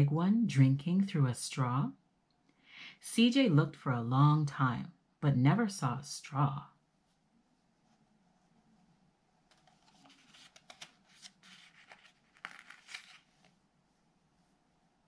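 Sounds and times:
paper pages rustling: 9.5s - 13.6s.

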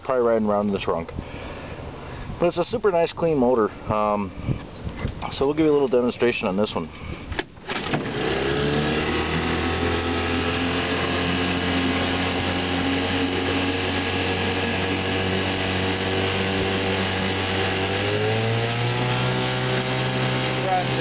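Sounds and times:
outboard motor running: 7.6s - 21.0s.

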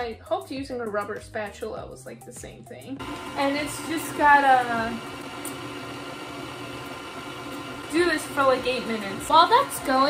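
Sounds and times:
stand mixer kneading dough: 3.0s - 10.0s.

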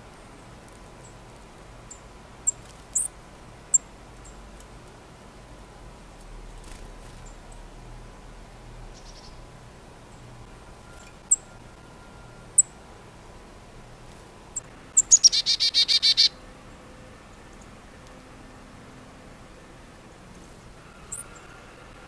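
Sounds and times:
chickadee chip calls: 1.8s - 4.4s, 8.9s - 9.5s, 10.1s - 12.9s, 14.6s - 16.4s, 21.0s - 21.6s
chickadee buzzy call: 8.9s - 9.5s, 14.9s - 16.4s, 20.8s - 22.0s.

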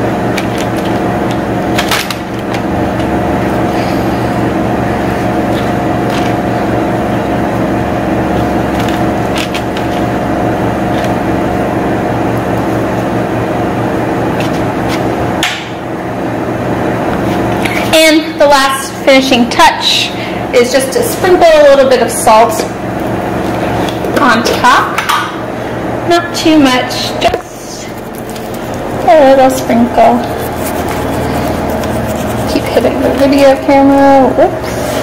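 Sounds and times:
loud steady hum: 0.0s - 35.0s
pastry brush tapping: 30.2s - 33.4s.

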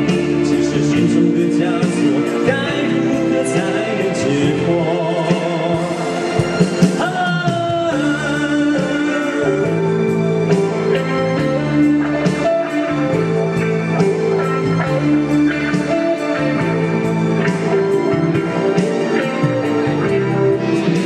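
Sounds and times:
person singing into microphone: 0.0s - 13.5s
electric keyboard: 0.0s - 21.0s
guitar: 0.0s - 21.0s.

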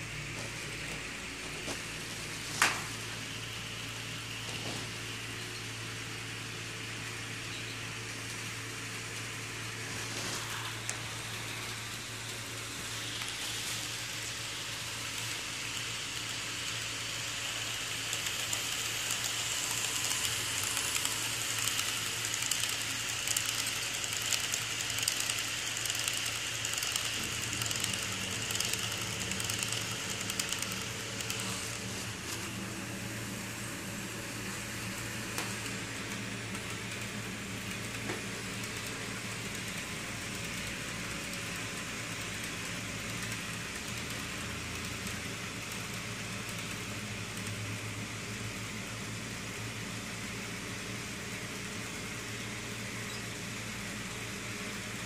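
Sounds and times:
low electrical hum: 0.0s - 55.0s
small electric motor hiss: 0.0s - 55.0s
model train wheels clicking: 8.2s - 32.6s, 34.4s - 49.3s.

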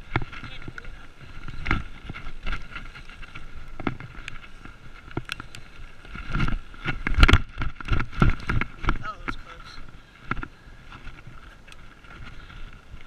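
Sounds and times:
bike frame rattling and knocking: 0.0s - 5.4s, 6.0s - 9.4s
bike tyres on dirt: 0.0s - 13.0s.

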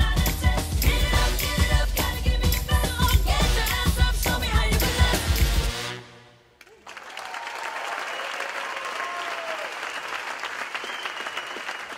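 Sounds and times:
pop song with singing: 0.0s - 6.0s
audience applauding: 6.6s - 11.9s.

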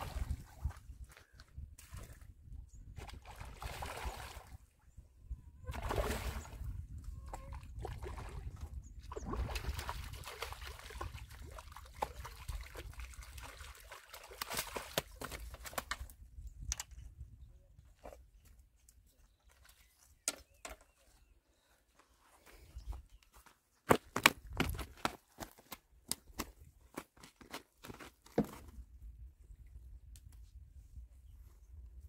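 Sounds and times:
fish splashing in shallow water: 3.0s - 4.6s, 5.7s - 6.7s, 7.4s - 15.7s.

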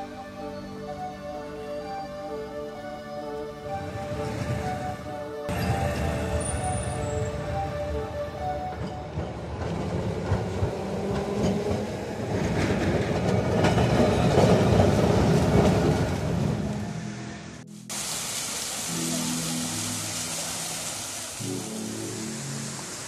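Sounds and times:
tram rumbling and rattling on rails: 3.2s - 23.0s
fountain water rushing: 17.2s - 23.0s.

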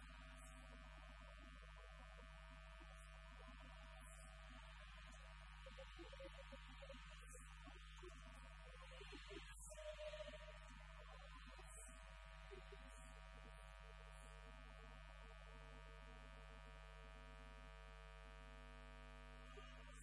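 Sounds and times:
steady electrical hum: 0.0s - 20.0s.

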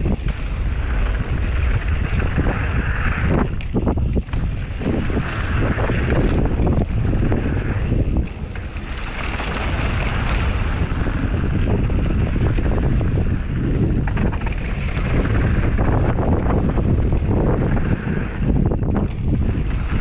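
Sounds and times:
bike rattles and clicks: 0.0s - 20.0s
tyres on dirt and gravel: 0.0s - 20.0s
wind rushing over microphone: 0.0s - 20.0s.

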